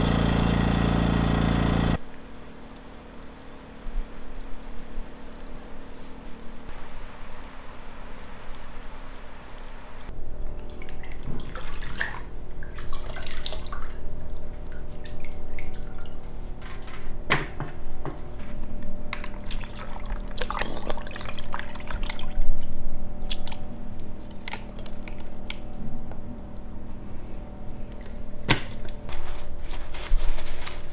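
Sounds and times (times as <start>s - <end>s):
water dripping into bucket: 2.0s - 4.6s, 6.8s - 9.8s.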